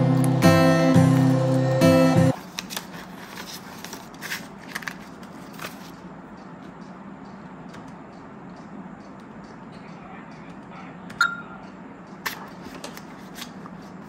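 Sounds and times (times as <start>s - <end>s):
guitar music: 0.0s - 2.4s
banknotes crinkling and clicking: 2.3s - 6.0s, 12.2s - 14.0s.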